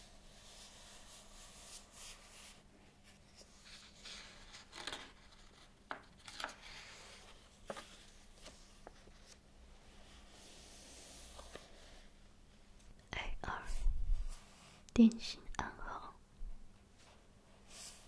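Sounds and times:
book page turning: 0:03.6 - 0:09.4, 0:10.5 - 0:12.0.

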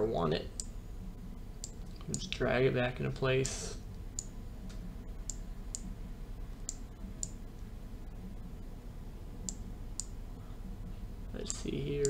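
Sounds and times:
low steady hum: 0:00.0 - 0:12.0
computer mouse clicking: 0:01.6 - 0:02.3.

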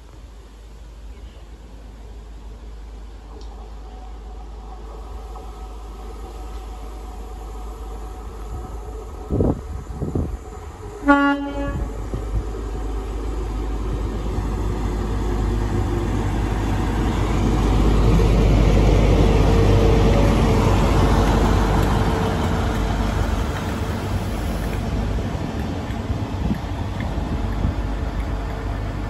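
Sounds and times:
train rumbling past on rails: 0:00.0 - 0:29.0
train horn blast: 0:11.0 - 0:12.0.

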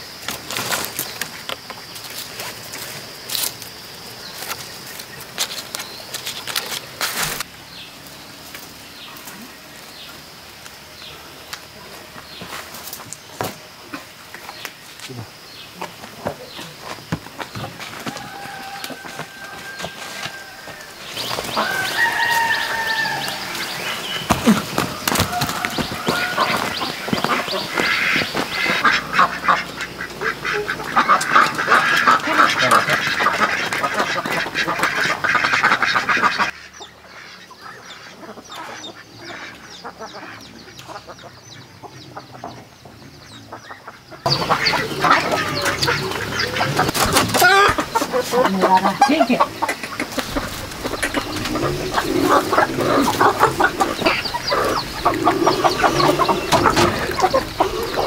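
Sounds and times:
chickens clucking: 0:00.2 - 0:58.0
ducks quacking: 0:15.0 - 0:58.0.

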